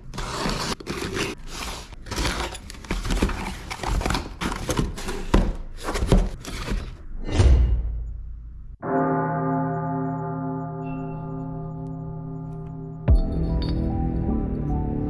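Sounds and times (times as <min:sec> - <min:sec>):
cardboard rustling and scraping: 0:00.0 - 0:07.0.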